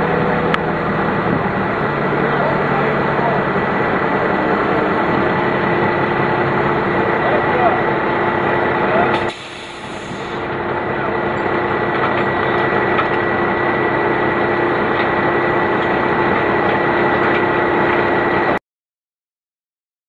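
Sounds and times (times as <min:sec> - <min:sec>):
truck diesel engine running: 0:00.0 - 0:18.6.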